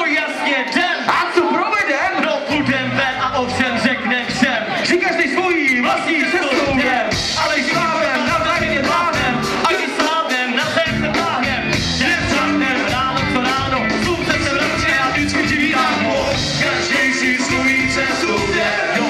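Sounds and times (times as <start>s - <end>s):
drums: 0.0s - 19.0s
men singing: 5.8s - 19.0s.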